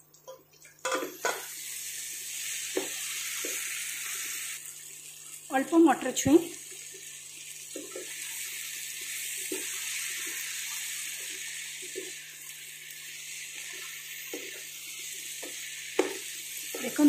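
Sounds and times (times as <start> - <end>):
vegetables sizzling in oil: 0.8 - 17.0
spatula knocking and scraping pan: 15.4 - 17.0.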